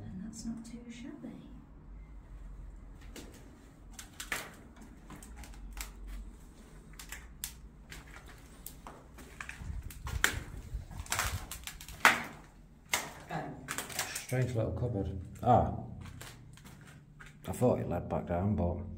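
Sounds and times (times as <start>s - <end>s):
footsteps crunching on debris: 7.7s - 14.2s, 15.3s - 17.5s.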